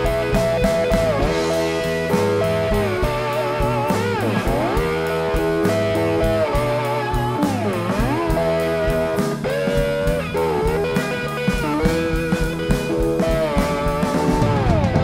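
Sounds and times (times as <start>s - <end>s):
bass guitar: 0.0s - 15.0s
drum beat: 0.0s - 15.0s
electric guitar solo: 0.0s - 15.0s.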